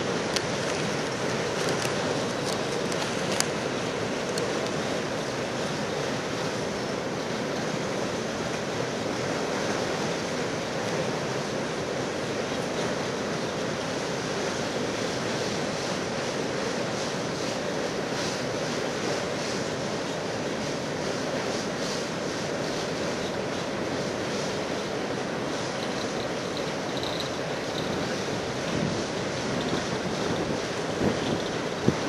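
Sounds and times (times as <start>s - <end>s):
train cars rolling over steel bridge: 0.0s - 32.0s
wind on microphone: 25.7s - 32.0s.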